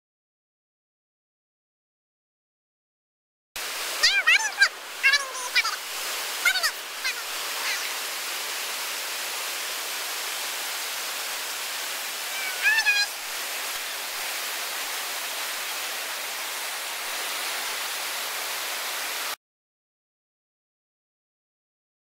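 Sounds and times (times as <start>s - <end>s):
whitewater rushing: 3.6s - 19.4s
short high-pitched call: 12.3s - 13.1s.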